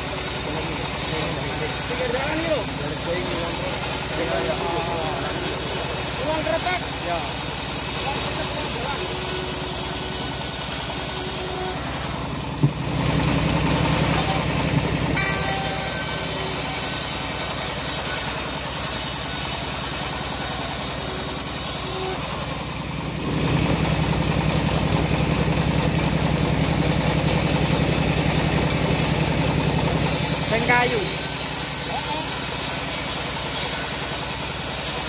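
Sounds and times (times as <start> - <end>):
band sawmill running: 0.0 - 35.0
sharp knock: 12.6 - 12.8.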